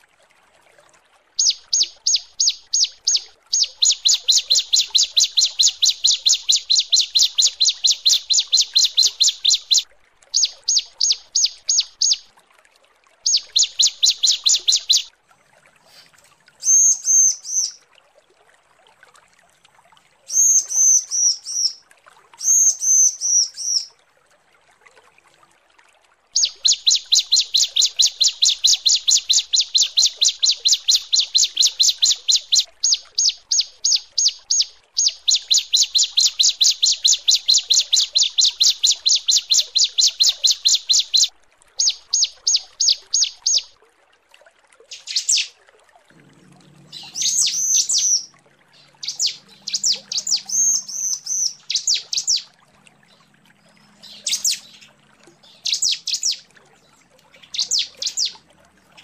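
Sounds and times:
bird calling with sharp chirps: 1.4 - 12.3, 13.2 - 15.1, 16.6 - 17.8, 20.3 - 21.8, 22.4 - 23.9, 26.4 - 43.7, 44.9 - 45.5, 46.9 - 52.5, 53.8 - 56.5, 57.3 - 58.4.

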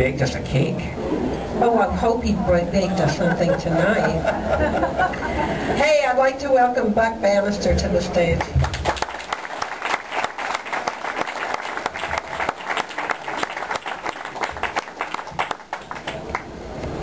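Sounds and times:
audience applause: 8.5 - 16.5.

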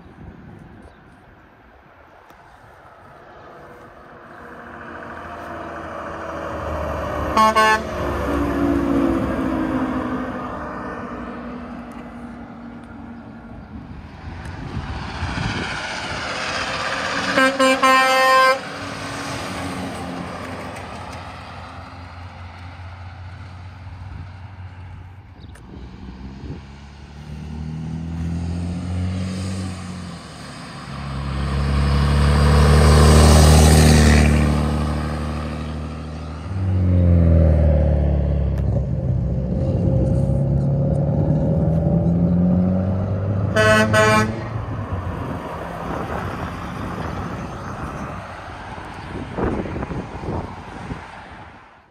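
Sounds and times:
diesel trucks passing: 0.0 - 51.9
truck horn blasts: 7.2 - 8.3, 17.2 - 18.7, 43.4 - 44.7
engine accelerating: 25.4 - 48.0.

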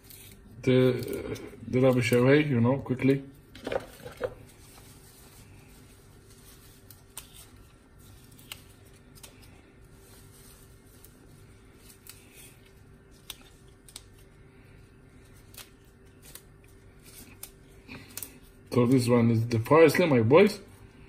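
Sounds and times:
parsley leaves snapping: 0.0 - 2.7, 6.2 - 14.4, 15.1 - 20.1.

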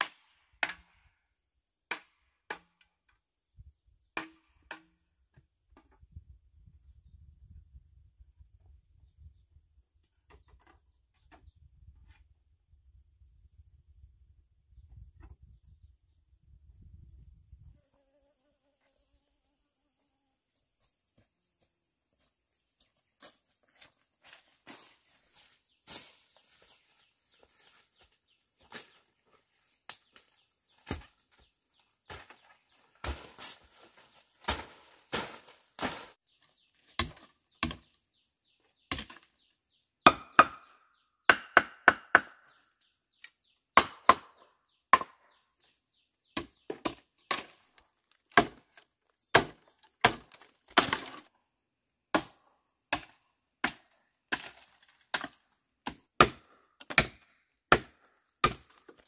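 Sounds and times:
blade chopping bamboo: 32.1 - 33.6, 34.4 - 36.1, 36.9 - 37.9, 48.3 - 51.3, 52.2 - 59.0.

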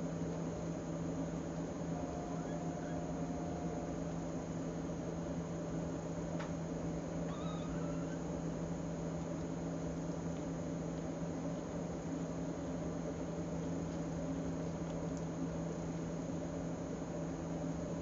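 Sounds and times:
steady hiss and hum: 0.0 - 18.0
kittens mewing: 7.2 - 8.5.

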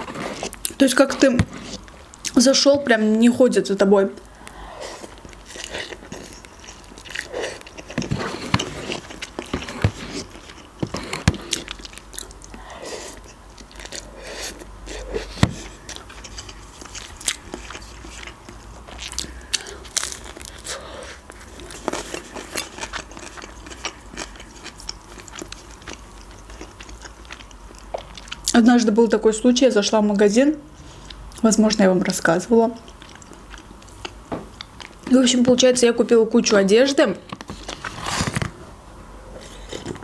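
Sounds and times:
chewing with wet mouth noises: 4.8 - 28.6, 32.7 - 35.1.

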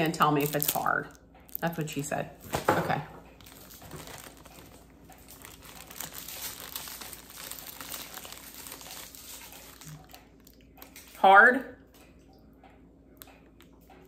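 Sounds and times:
snack wrapper crinkling: 0.4 - 1.7, 3.4 - 11.2.

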